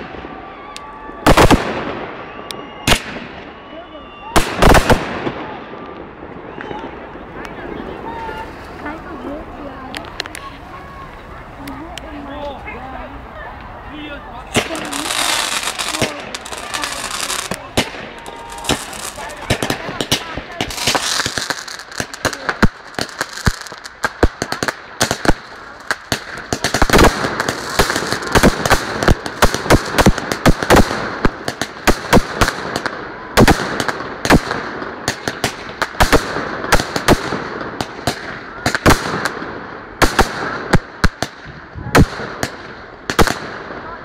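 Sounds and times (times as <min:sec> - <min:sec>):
fireworks bursting: 0:00.0 - 0:12.3, 0:14.4 - 0:44.0
continuous background noise: 0:00.0 - 0:44.0
sharp bangs and pops: 0:01.2 - 0:03.5, 0:04.4 - 0:05.5, 0:14.5 - 0:43.8.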